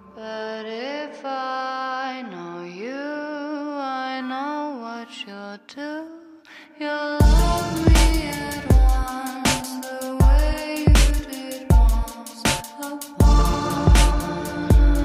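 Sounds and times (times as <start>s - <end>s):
slow gliding singing: 7.0s - 15.0s
heavy music beat: 7.2s - 15.0s.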